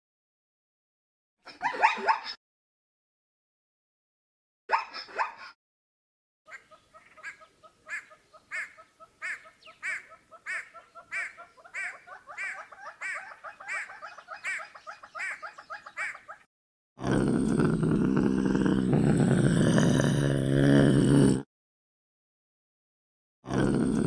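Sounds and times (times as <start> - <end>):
animal calling: 6.5 - 16.5.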